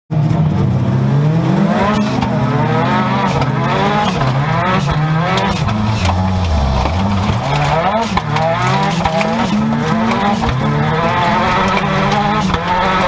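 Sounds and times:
turbocharged engine racing: 0:00.1 - 0:13.0
sharp clicks and knocks: 0:03.2 - 0:13.0.

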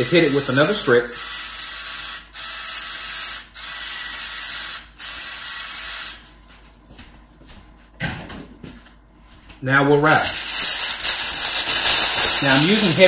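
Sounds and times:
liquid sprayer hissing: 0:10.2 - 0:13.0.

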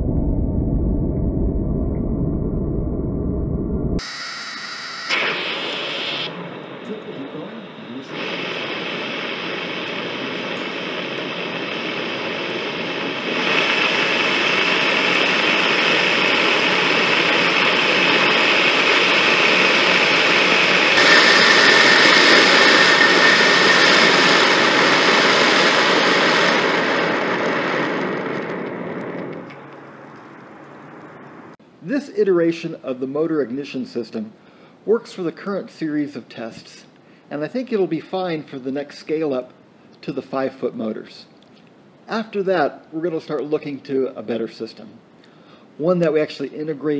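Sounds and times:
rocket motor exhaust rushing: 0:00.0 - 0:31.6.

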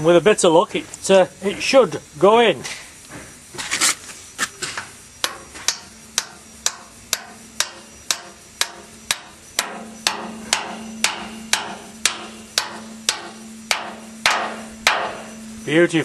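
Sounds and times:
hammer striking bolt: 0:05.2 - 0:15.5
low metallic ring: 0:05.2 - 0:16.0.

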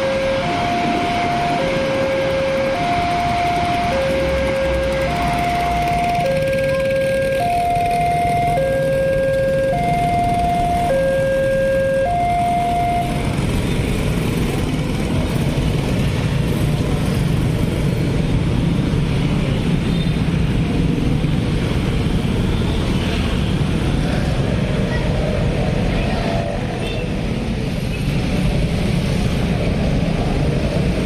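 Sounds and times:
level crossing alarm: 0:00.0 - 0:13.6
motorcycle engines humming: 0:00.0 - 0:31.0.

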